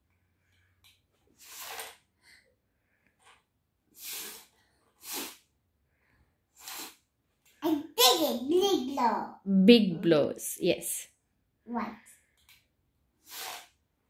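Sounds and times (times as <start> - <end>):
toddler blowing through a straw: 1.3 - 2.4, 3.9 - 5.6, 6.5 - 7.1, 13.2 - 13.8.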